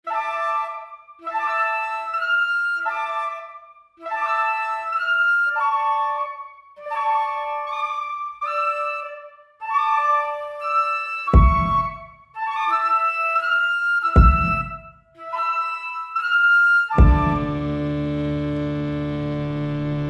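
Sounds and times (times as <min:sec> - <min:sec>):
instrumental background music: 0:10.6 - 0:20.0.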